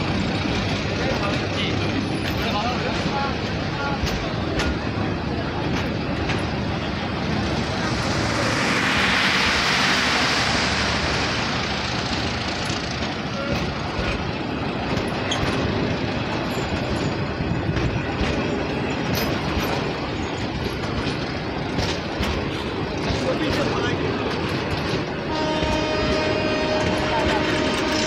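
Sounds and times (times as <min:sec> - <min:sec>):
sharp rail clicks: 0:00.0 - 0:28.0
train wheels rumbling on rails: 0:00.0 - 0:28.0
hissing rush: 0:05.9 - 0:14.6.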